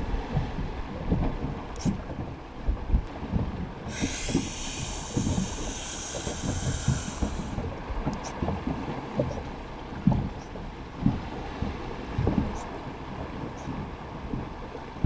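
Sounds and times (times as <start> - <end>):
inflatable boat knocking on sea: 0.0 - 15.0
wind on microphone: 0.0 - 15.0
steady hiss: 3.9 - 7.6.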